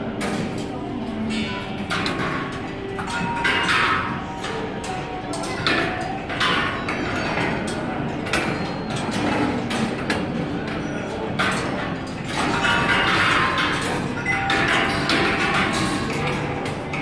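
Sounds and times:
balls clacking on metal tracks: 0:00.0 - 0:17.0.

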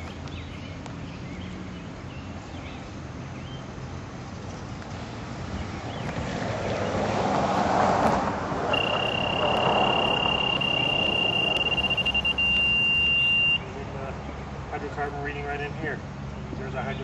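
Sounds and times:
gas detector alarm tone: 0:08.7 - 0:13.6.

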